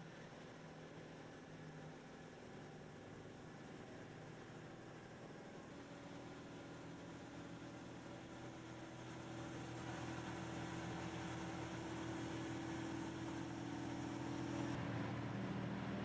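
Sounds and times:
heavy vehicle engine humming: 0:05.6 - 0:16.0.

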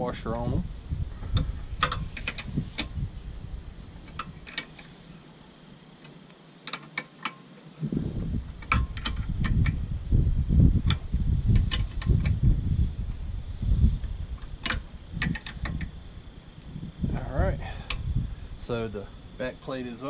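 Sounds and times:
low rumble: 0:00.0 - 0:04.5, 0:07.8 - 0:19.6
metallic clicks of bolts and tools: 0:06.6 - 0:07.4, 0:14.6 - 0:15.9.

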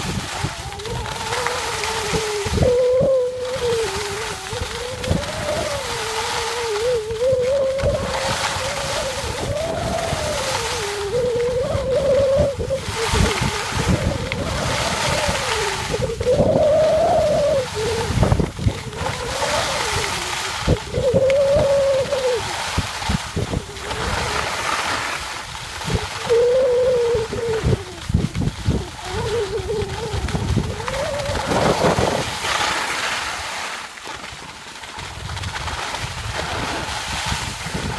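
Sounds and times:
person humming a tune: 0:00.0 - 0:22.8, 0:25.8 - 0:32.4
wind buffeting microphone: 0:00.0 - 0:34.4, 0:35.0 - 0:37.9
skis sliding on snow: 0:00.0 - 0:37.9.

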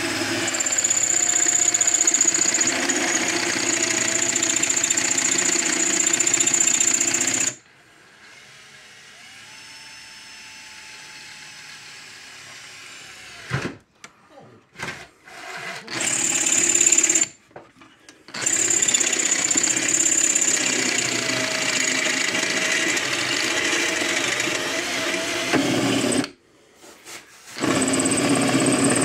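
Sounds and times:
power tool whining: 0:00.0 - 0:07.6, 0:18.3 - 0:26.3, 0:27.6 - 0:29.0.

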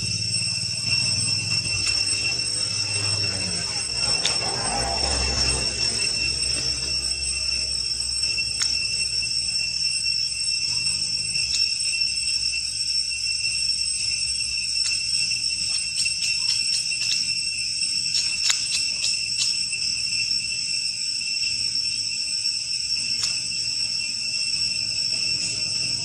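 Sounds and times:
high-pitched insect chorus: 0:00.0 - 0:26.0
sharp ticks: 0:08.2 - 0:09.0, 0:15.6 - 0:17.4, 0:18.1 - 0:19.7.

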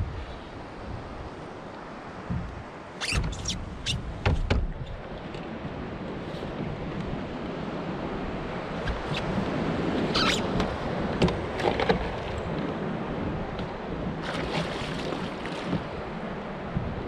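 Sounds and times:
wind: 0:00.0 - 0:17.0
water lapping: 0:08.5 - 0:16.6.

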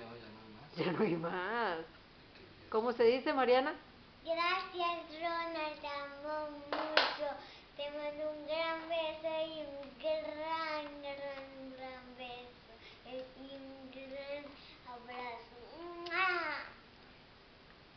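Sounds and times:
girl singing without words: 0:04.3 - 0:16.8.

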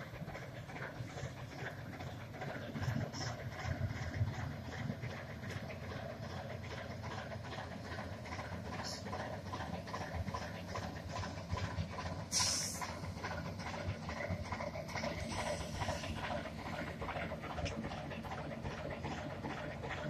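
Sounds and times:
diesel locomotive engine rumbling: 0:00.0 - 0:20.0
wheels clicking on track: 0:00.0 - 0:20.0
short burst of hissing: 0:12.3 - 0:12.8.

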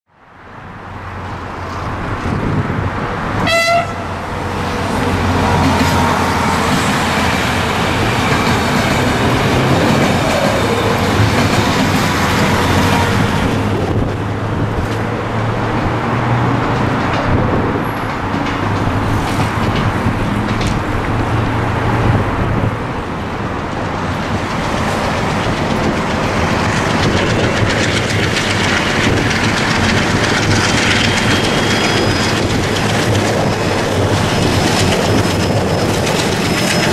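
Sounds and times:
train rumble and rail clatter: 0:00.1 - 0:36.9
diesel locomotive working hard: 0:00.8 - 0:36.9
train horn toot: 0:03.4 - 0:04.3.

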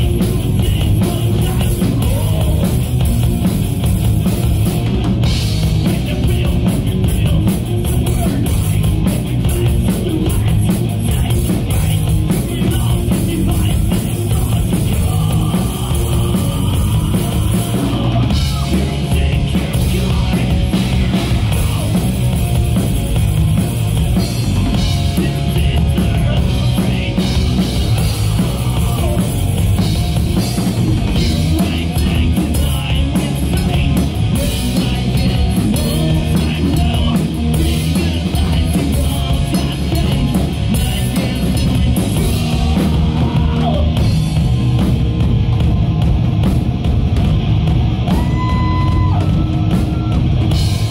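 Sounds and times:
rock band playing: 0:00.0 - 0:50.9
person singing: 0:05.6 - 0:22.1, 0:24.6 - 0:29.5, 0:30.4 - 0:44.2.

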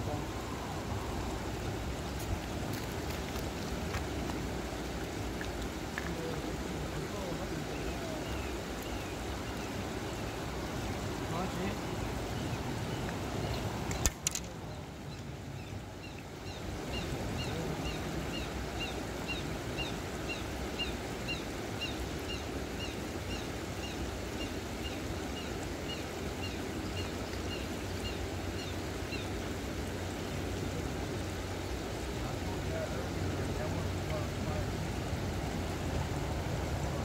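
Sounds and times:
water rushing through weir: 0:00.0 - 0:37.0
sharp clicks: 0:13.9 - 0:14.5.

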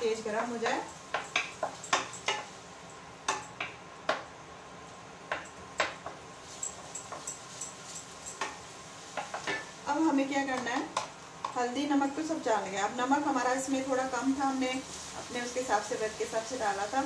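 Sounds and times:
food frying in oil: 0:00.0 - 0:17.0
spoon scraping and clinking in pan: 0:05.4 - 0:09.8.

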